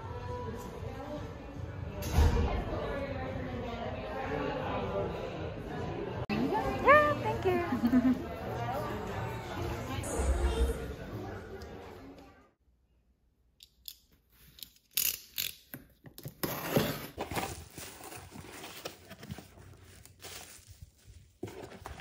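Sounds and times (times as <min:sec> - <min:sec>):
bubble wrap rustling: 0:17.4 - 0:22.0.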